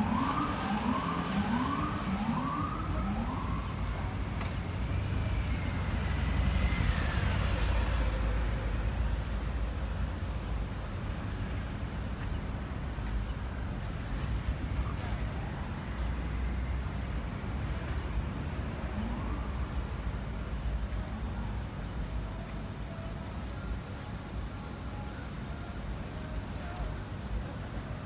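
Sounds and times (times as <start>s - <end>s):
emergency siren yelping: 0.0s - 4.2s
city traffic noise: 0.0s - 28.0s.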